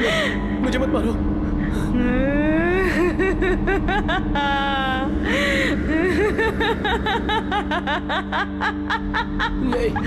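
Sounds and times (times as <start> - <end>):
low steady drone: 0.0 - 10.0
woman laughing eerily: 2.6 - 10.0.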